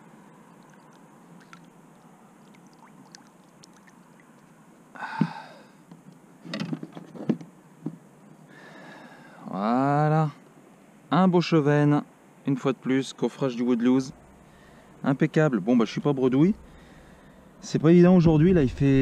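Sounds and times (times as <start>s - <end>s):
water dripping: 0.5s - 4.6s.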